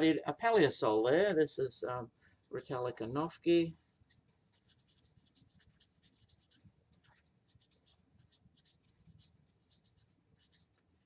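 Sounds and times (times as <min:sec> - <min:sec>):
marker pen writing on whiteboard: 0:04.1 - 0:10.8.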